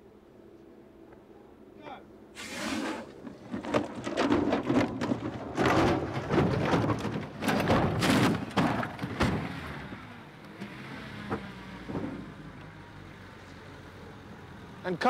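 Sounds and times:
truck tumbling with heavy thuds: 2.4s - 10.3s, 11.0s - 12.6s.

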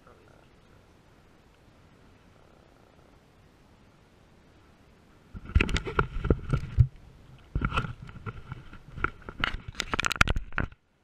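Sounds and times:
camera handling knocks and scrapes: 5.4s - 6.9s, 7.5s - 10.8s.

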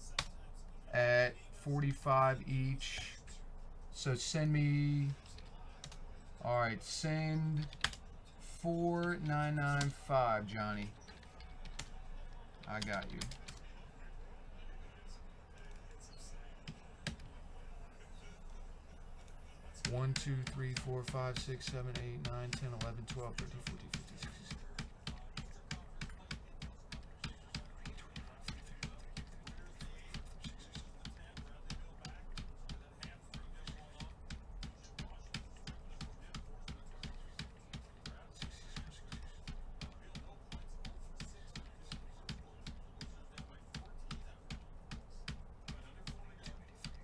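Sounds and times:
keyboard clicking: 7.5s - 8.0s, 9.0s - 13.7s.

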